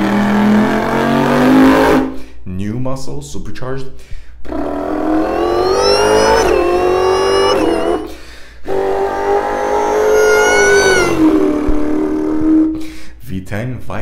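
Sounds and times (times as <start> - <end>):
man imitating engine revving: 4.6 - 12.8.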